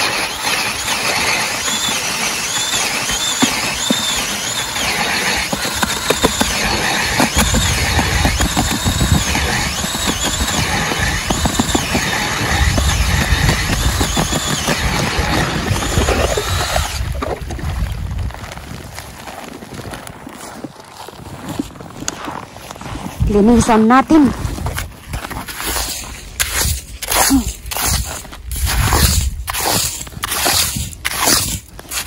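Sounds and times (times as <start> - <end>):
drill motor whine: 0.0 - 17.2
auger blades grinding ice: 0.0 - 32.0.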